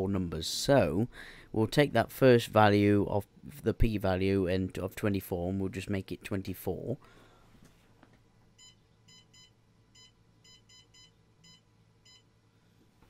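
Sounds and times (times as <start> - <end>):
short electronic beeps: 8.6 - 12.3.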